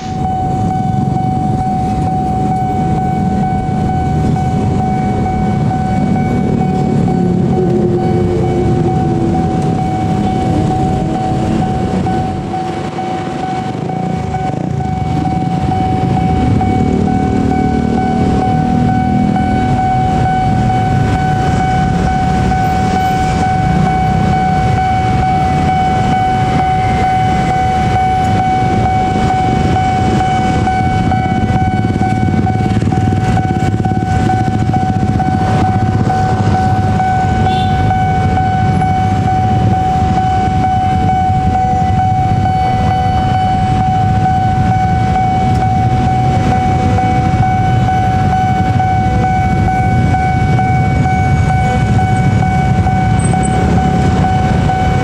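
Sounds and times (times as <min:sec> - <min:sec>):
idling cars and motorbikes: 0:00.0 - 0:55.0
level-crossing alarm steady tone: 0:00.0 - 0:55.0.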